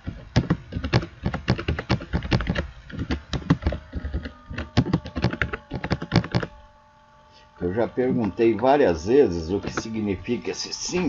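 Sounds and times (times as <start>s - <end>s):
computer keyboard typing: 0.1s - 6.5s.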